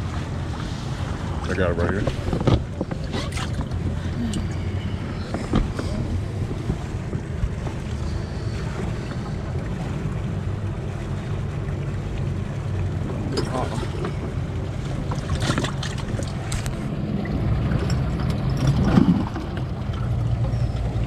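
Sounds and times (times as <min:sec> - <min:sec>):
wind buffeting microphone: 0:00.0 - 0:10.8.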